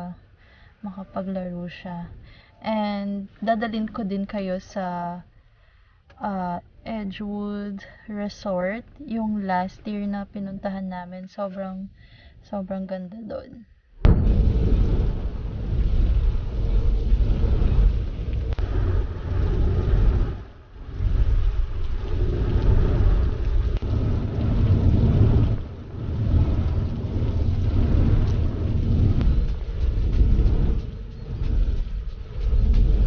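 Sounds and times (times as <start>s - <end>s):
car road noise rumble: 14.0s - 33.0s.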